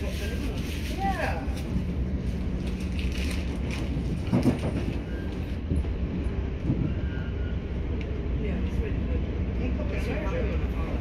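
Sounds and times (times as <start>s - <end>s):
train wheels rumbling on track: 0.0s - 11.0s
train bump: 2.6s - 8.9s.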